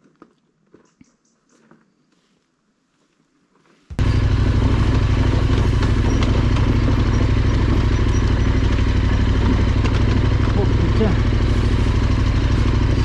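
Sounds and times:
motorcycle engine running: 3.9 - 13.0.

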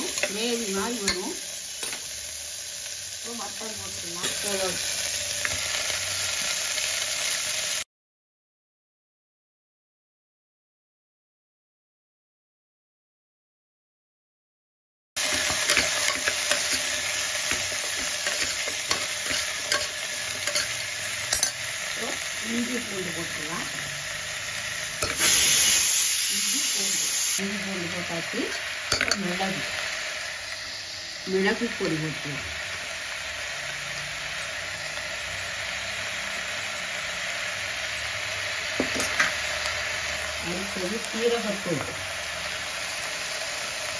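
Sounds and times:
meat sizzling in hot oil: 0.0 - 7.9, 15.2 - 43.9
metal ladle scraping pot: 17.5 - 21.6.

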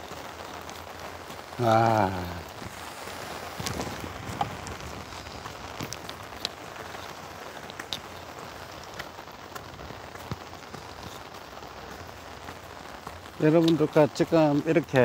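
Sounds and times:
raindrops ticking on umbrella: 0.0 - 15.0
steady rain hissing: 0.0 - 15.0.

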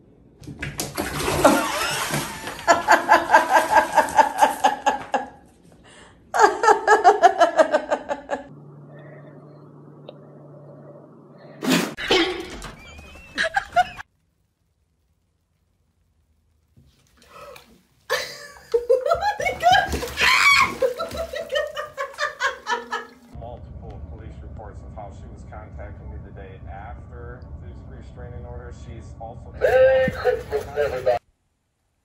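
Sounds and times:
low steady hum: 0.0 - 32.0
person laughing hard: 1.4 - 5.4, 6.4 - 8.5, 13.2 - 14.0, 18.1 - 23.2, 29.6 - 31.2.

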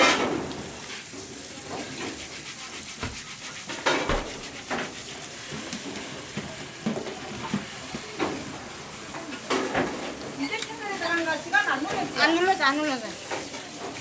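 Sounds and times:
tap water spraying into a sink: 0.0 - 14.0
brush scrubbing shells: 1.7 - 5.4.

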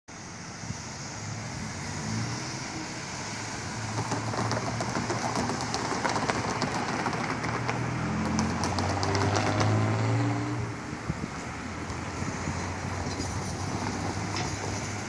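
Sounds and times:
faint rapid clicks: 4.0 - 9.7.

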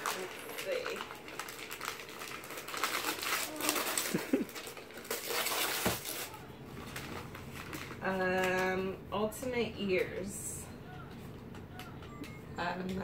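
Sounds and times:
wrapping paper crinkling and tearing: 0.0 - 8.8.

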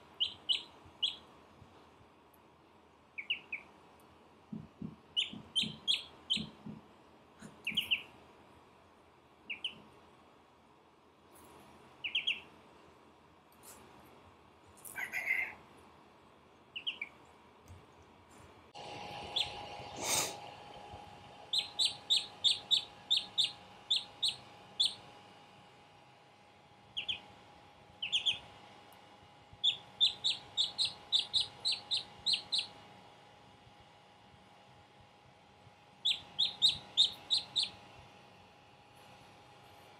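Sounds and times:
duckling peeping: 0.0 - 1.3, 3.1 - 3.7, 5.1 - 6.7, 7.4 - 8.2, 9.4 - 9.9, 12.0 - 12.5, 14.8 - 15.6, 16.7 - 17.2, 19.2 - 20.4, 21.4 - 25.1, 26.9 - 27.4, 28.0 - 28.6, 29.6 - 32.8, 36.0 - 37.9
faint steady hum: 0.0 - 39.9.

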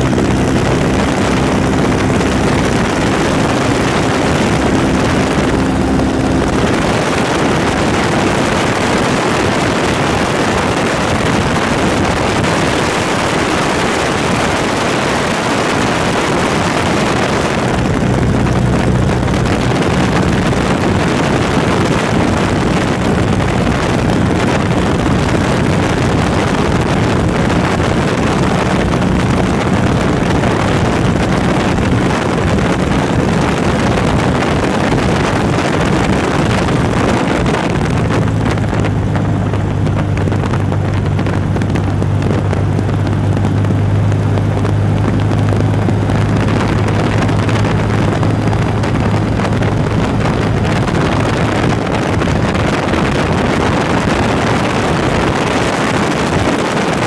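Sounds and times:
aircraft piston engine drone: 0.0 - 57.0
wind rushing in cabin: 0.0 - 57.0.

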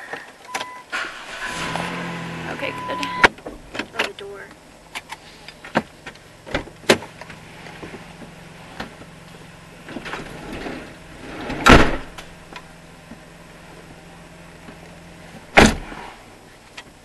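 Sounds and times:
sliding door rolling: 10.0 - 12.1
door latching thump: 11.6 - 12.2, 15.5 - 15.9.

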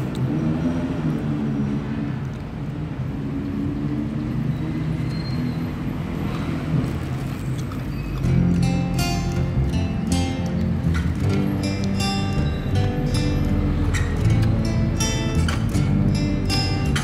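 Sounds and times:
road traffic rumble: 0.0 - 17.0
music: 8.2 - 17.0.

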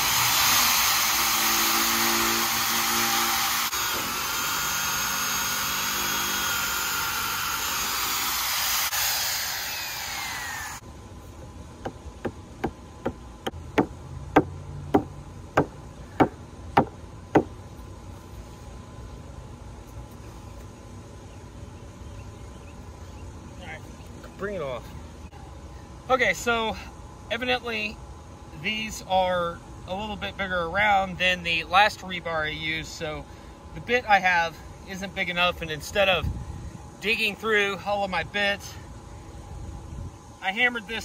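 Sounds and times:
hammer drill boring through wood: 0.0 - 10.8.

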